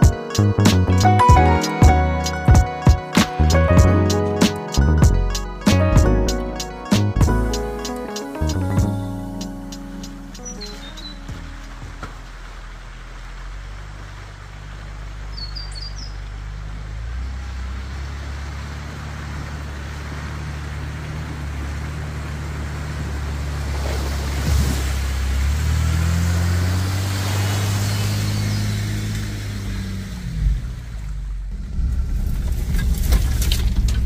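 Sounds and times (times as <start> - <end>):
car engine hum: 0.0 - 34.0
water splashing around tyres: 8.0 - 34.0
bird chirps: 10.0 - 11.8, 15.3 - 16.3.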